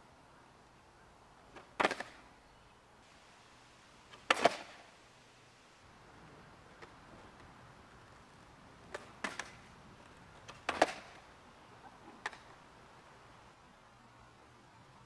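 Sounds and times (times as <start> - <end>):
skateboard knocking on asphalt: 1.5 - 2.2, 4.1 - 4.8, 6.2 - 11.3, 12.1 - 12.6.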